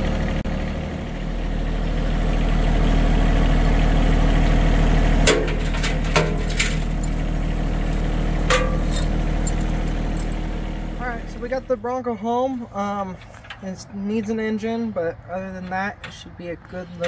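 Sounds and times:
tractor engine idling: 0.0s - 17.0s
metal chain clinks: 5.8s - 7.3s, 7.9s - 10.4s.

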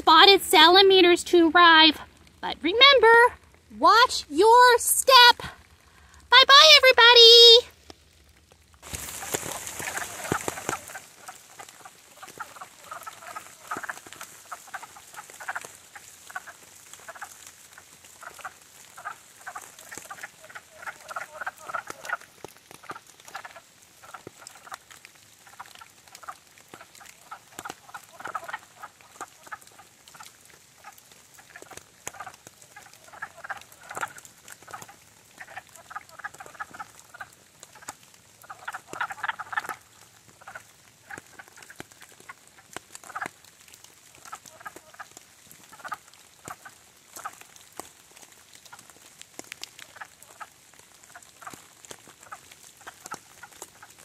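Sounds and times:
rain pattering: 0.0s - 54.0s.

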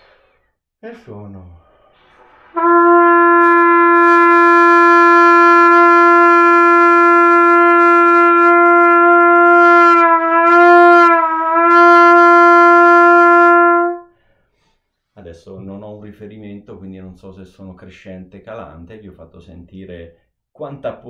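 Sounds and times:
trumpet holding a long tone: 2.5s - 14.1s.

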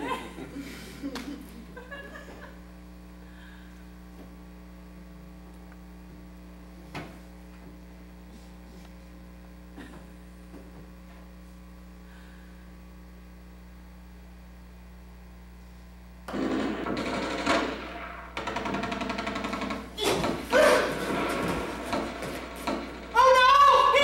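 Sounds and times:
electrical mains hum: 0.0s - 24.0s
sharp knocks: 16.3s - 23.4s.

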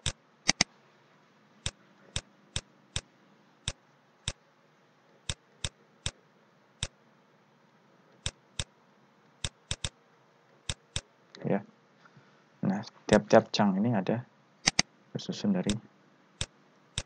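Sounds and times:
mouse button clicks: 0.0s - 0.7s, 14.6s - 14.8s
faint steady hum: 0.0s - 17.0s.

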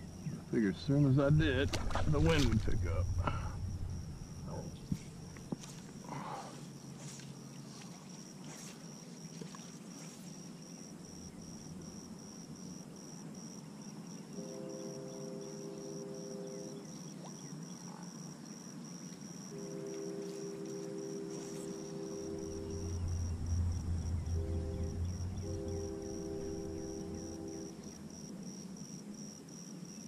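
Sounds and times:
crickets chirping: 0.0s - 30.0s
chord of low tones: 1.1s - 5.5s, 21.7s - 27.9s.

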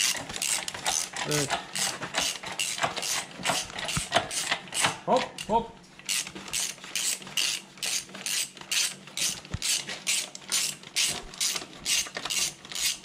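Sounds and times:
ratchet wrench clicking: 0.0s - 5.5s, 6.1s - 13.0s.

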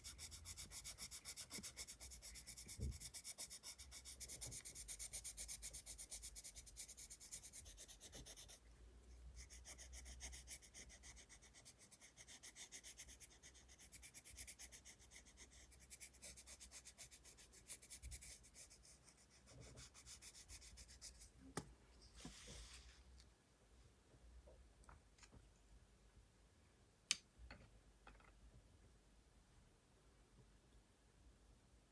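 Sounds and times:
pencil scratching on paper: 0.0s - 8.7s, 9.3s - 21.4s.

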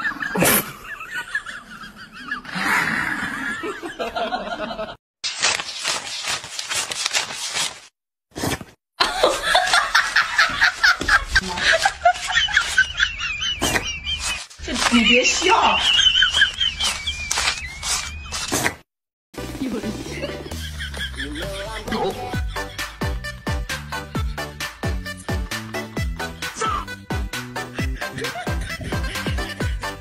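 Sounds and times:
rapid papery flicking: 5.2s - 8.0s, 10.6s - 13.0s, 13.6s - 18.7s
person laughing: 9.0s - 18.6s, 20.0s - 23.1s, 27.6s - 30.0s.

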